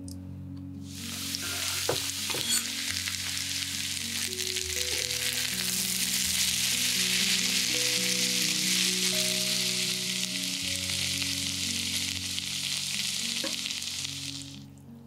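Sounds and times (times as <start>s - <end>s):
soft background music: 0.0s - 15.0s
potatoes sizzling in frying pan: 0.8s - 14.7s
onion clattering into pan: 1.3s - 3.6s.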